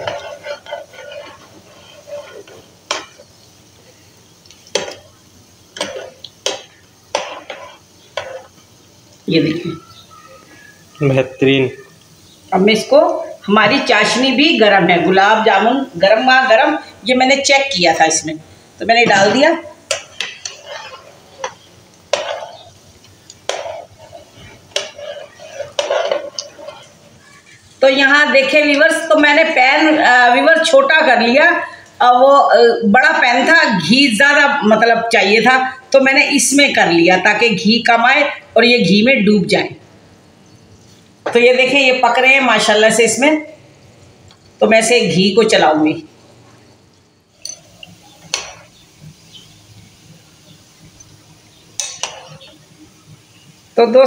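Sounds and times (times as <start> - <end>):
soft frying sizzle: 0.0 - 54.0
spoon knocking against pan: 5.8 - 8.5, 19.0 - 26.8, 47.4 - 48.7, 51.8 - 52.5
metal spoon knocking on pan: 19.0 - 22.6, 23.4 - 23.9.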